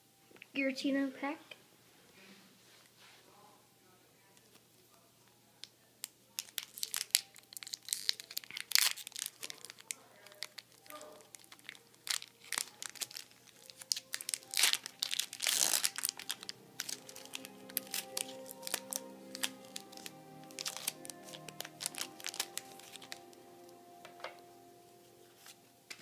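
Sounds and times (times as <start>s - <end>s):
foil wrapper tearing: 6.3s - 23.4s
foil wrapper crinkling: 6.3s - 23.7s.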